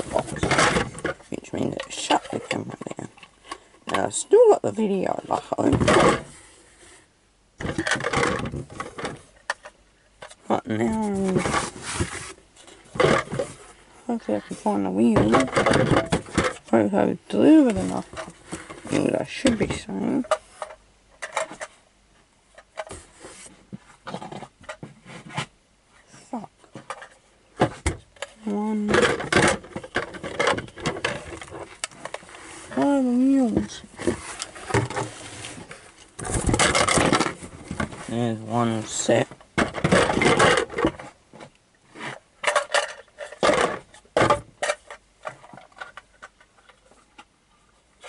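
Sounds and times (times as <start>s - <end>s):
plastic toy parts rattling: 0.0s - 3.3s, 7.6s - 10.4s, 28.2s - 41.1s, 42.4s - 47.2s.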